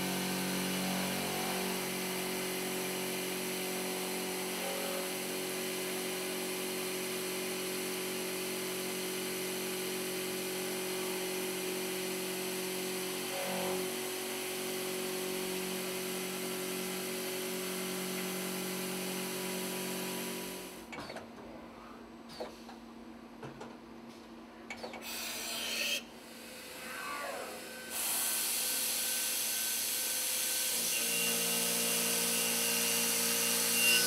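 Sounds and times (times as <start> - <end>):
milling cutter whining through steel: 0.0 - 6.7, 24.8 - 34.0.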